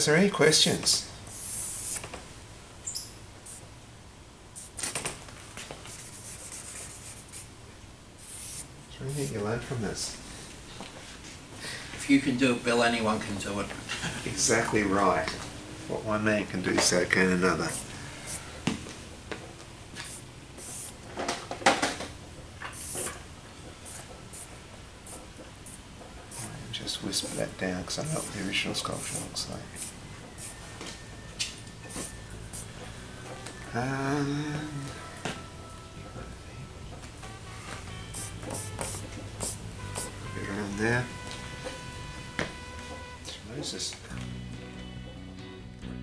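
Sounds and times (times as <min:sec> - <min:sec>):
charcoal scratching on paper: 0:05.9 - 0:07.5, 0:08.2 - 0:09.4, 0:25.1 - 0:30.6.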